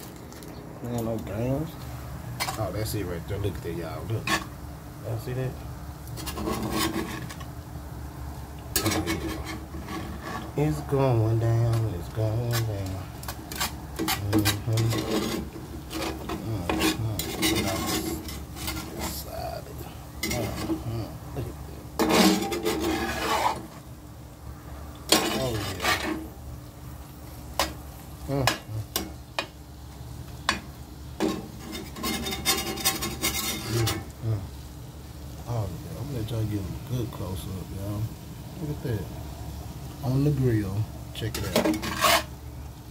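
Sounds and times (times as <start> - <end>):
metal spatula scraping skillet: 2.4 - 2.8, 4.0 - 4.6, 6.1 - 7.5, 8.7 - 10.8, 11.7 - 23.9, 25.1 - 26.4, 30.5 - 34.1, 41.2 - 42.4.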